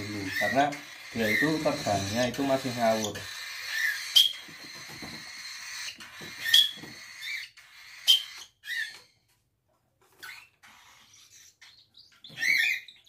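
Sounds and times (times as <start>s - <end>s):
budgerigar chirping: 0.0s - 9.2s, 10.1s - 13.0s.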